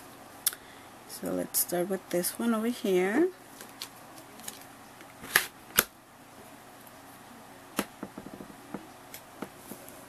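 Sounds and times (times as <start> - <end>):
stamper tapping on plate: 8.0 - 8.8.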